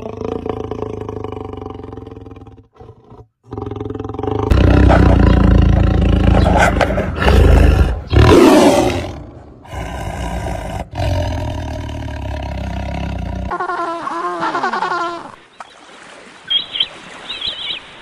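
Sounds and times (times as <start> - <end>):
tiger roaring: 0.0 - 13.5.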